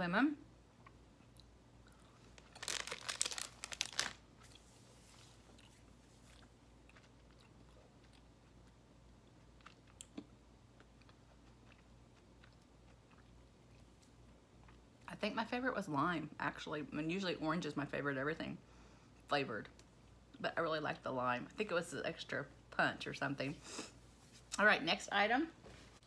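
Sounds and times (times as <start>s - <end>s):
crunchy chewing: 5.4s - 14.8s.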